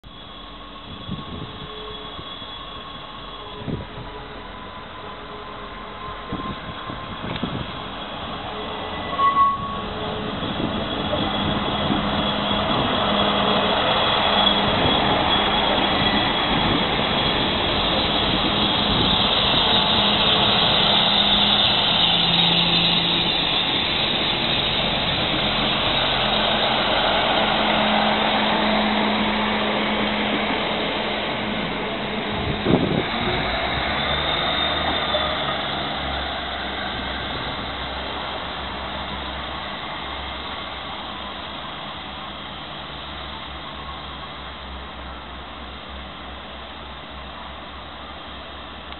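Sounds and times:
diesel train engines: 0:00.0 - 0:48.9
train wheels rumbling on rails: 0:00.1 - 0:48.9
brief high tone: 0:08.5 - 0:11.5.

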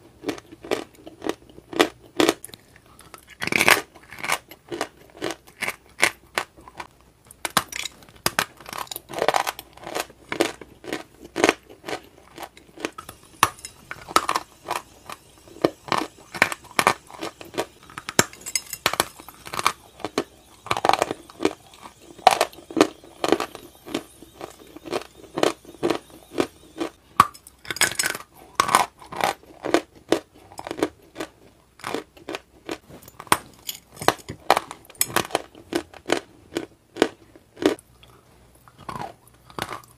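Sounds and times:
person crunching and chewing: 0:00.1 - 0:39.9.

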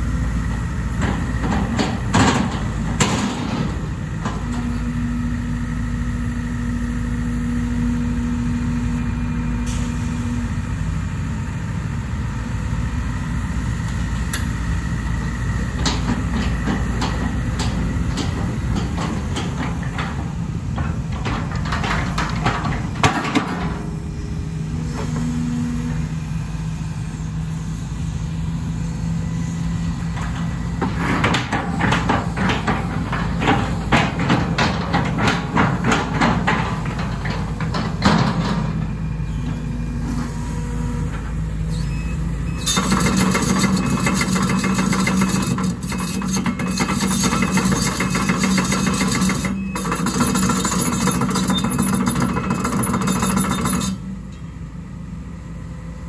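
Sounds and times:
excavator diesel engine: 0:00.0 - 0:56.0
steel tracks rattling and clanking: 0:00.9 - 0:05.0, 0:13.9 - 0:25.4, 0:29.9 - 0:39.6, 0:42.5 - 0:54.2.

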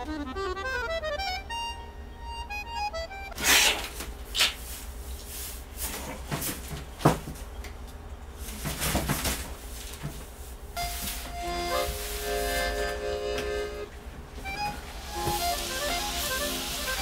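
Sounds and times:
cardboard scraping and rustling: 0:14.4 - 0:17.0.

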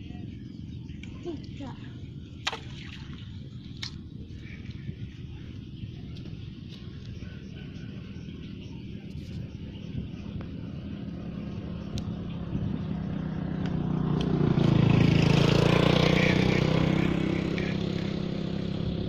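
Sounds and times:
vehicle engine passing by: 0:10.6 - 0:19.0.

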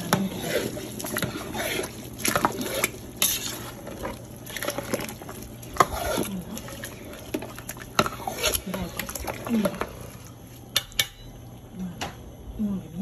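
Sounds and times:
metal spoon scraping pot: 0:00.0 - 0:09.9.

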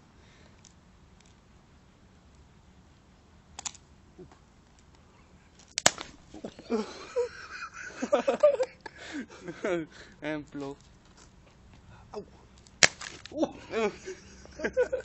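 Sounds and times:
noisy hiss: 0:00.0 - 0:15.0
voices: 0:05.0 - 0:15.0.

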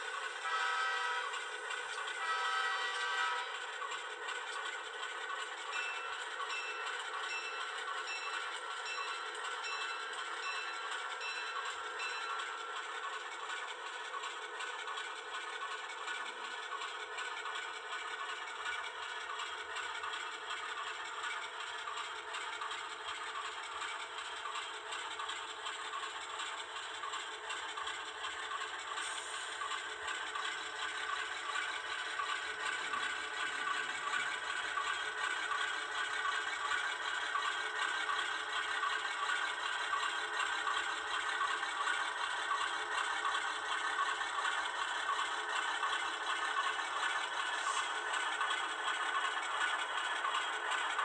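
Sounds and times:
model train wheels rattling: 0:00.0 - 0:51.0.

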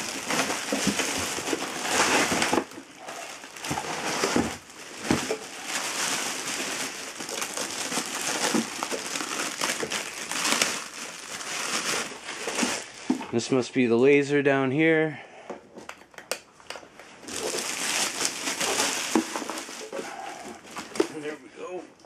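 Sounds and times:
plastic bag crinkling: 0:00.0 - 0:13.4, 0:17.2 - 0:21.4.

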